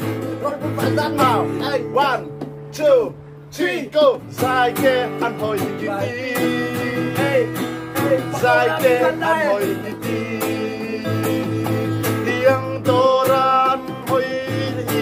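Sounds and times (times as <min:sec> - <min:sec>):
acoustic guitar strumming: 0:00.0 - 0:15.0
men singing: 0:00.4 - 0:02.2, 0:03.5 - 0:15.0.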